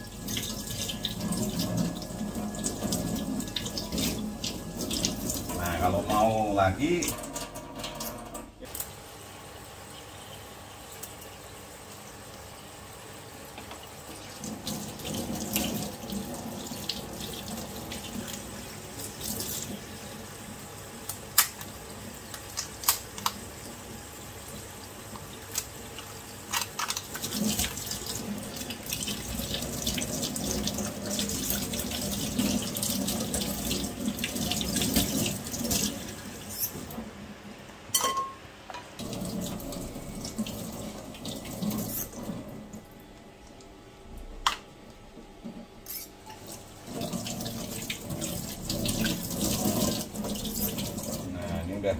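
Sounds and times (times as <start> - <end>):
tap water running into sink: 0.0 - 9.0, 13.5 - 37.0, 39.0 - 42.9, 46.3 - 51.3.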